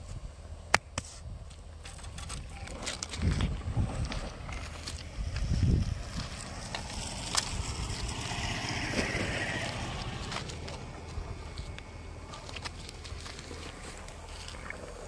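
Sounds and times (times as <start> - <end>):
wind rumbling on microphone: 1.2 - 15.0.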